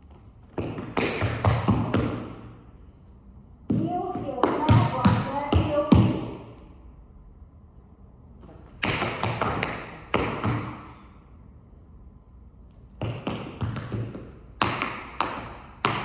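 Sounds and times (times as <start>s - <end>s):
tap shoes tapping on floor: 3.7s - 6.3s, 13.0s - 16.0s.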